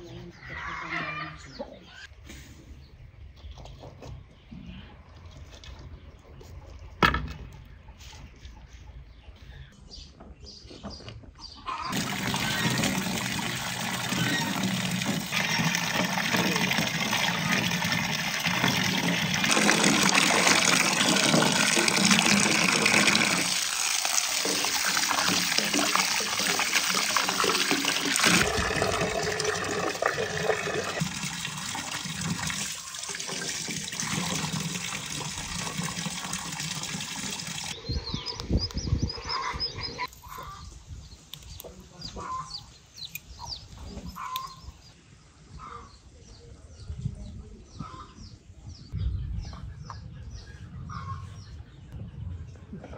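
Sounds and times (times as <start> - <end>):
birds calling: 0.0 - 35.4, 37.0 - 46.4, 47.7 - 52.1
water running and splashing: 11.9 - 37.8.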